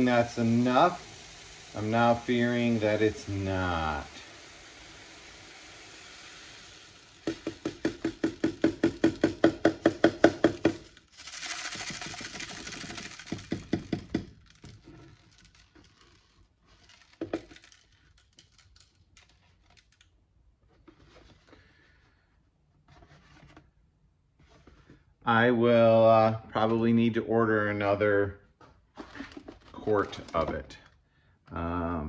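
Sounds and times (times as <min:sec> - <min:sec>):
beads pouring into plastic bowl: 0:00.0 - 0:09.0, 0:10.5 - 0:20.1
beads rattling in shaken jug: 0:10.5 - 0:20.0
clicks of falling beads: 0:10.5 - 0:20.1.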